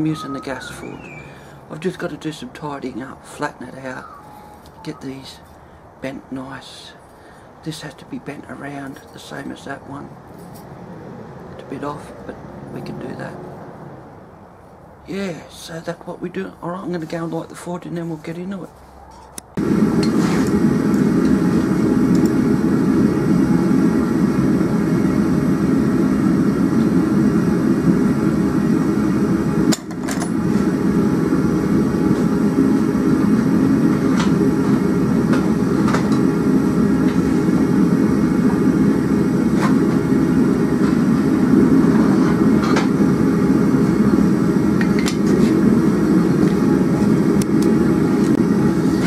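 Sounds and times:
gas forge burner rushing: 19.6 - 49.0.

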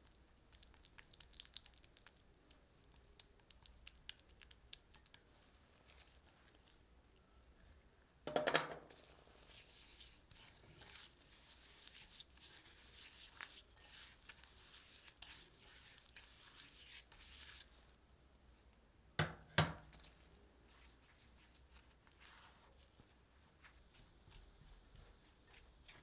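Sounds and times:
knocks on glass bowl: 8.3 - 8.8
spatula scraping glass bowl: 9.8 - 17.6.

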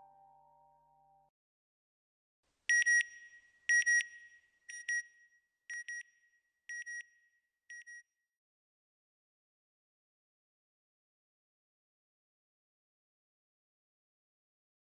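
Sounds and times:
music: 0.0 - 1.4.

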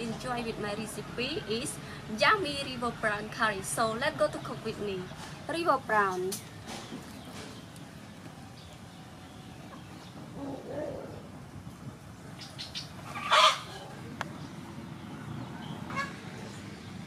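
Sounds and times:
chicken calls: 12.3 - 14.2, 15.6 - 16.3.

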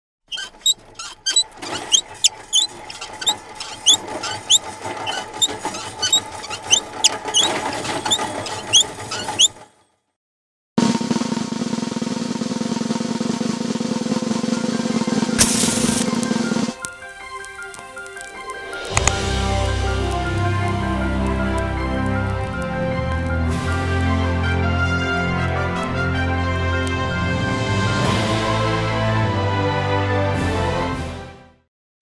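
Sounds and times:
quick squeaky chirps: 0.3 - 9.6, 15.4 - 16.2
snare drum roll: 10.8 - 16.7
bright burst: 15.4 - 16.2.

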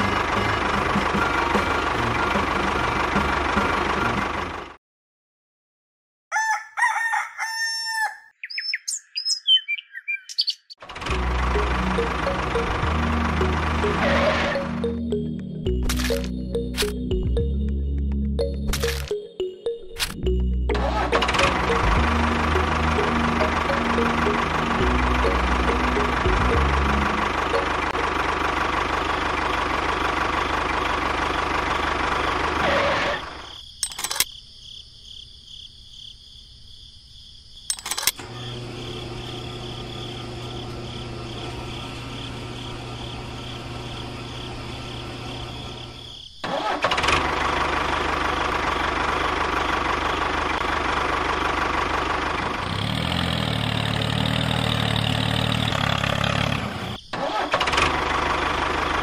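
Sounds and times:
miniature tractor engine running: 0.0 - 4.7, 10.8 - 14.5, 20.8 - 33.2, 46.5 - 59.0
fuel pump humming: 10.8 - 19.2, 20.0 - 33.1
sharp clicks: 37.7 - 38.2.

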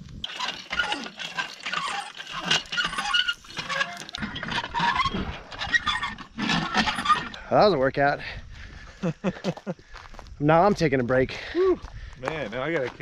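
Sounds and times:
hand pump squeaking and clanking: 0.1 - 7.8
water pattering: 1.0 - 4.2.

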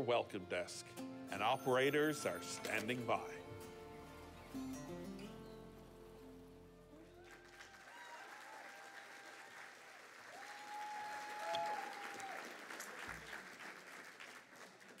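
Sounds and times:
audience applauding: 6.9 - 15.0.

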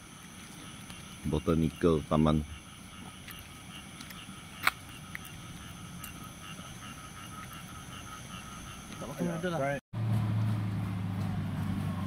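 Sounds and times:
high insect drone: 0.0 - 9.8
frog notes repeating: 0.9 - 9.6.

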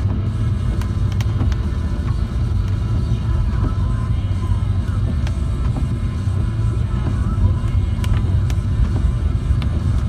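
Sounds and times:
car driving on wet road: 0.0 - 10.0
light ticks: 0.1 - 2.9, 7.0 - 10.0.

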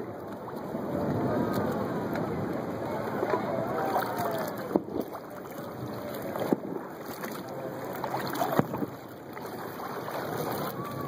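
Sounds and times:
water and wind noise: 0.0 - 11.0.

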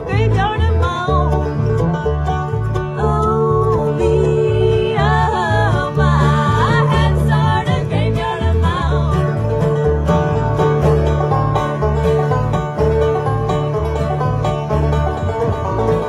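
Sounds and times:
banjo playing lead: 0.0 - 16.0
bluegrass band playing: 0.0 - 16.0.

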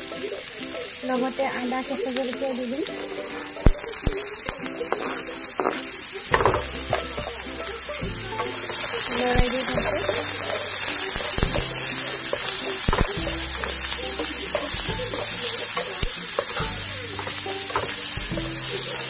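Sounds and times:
vegetables sizzling in oil: 0.0 - 19.0
wooden spatula scraping pan: 4.8 - 19.0.

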